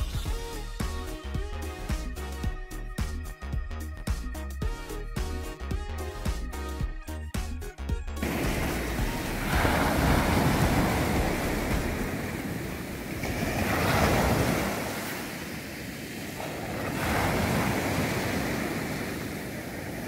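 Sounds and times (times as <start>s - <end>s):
surf washing up a sandy beach: 8.2s - 20.0s.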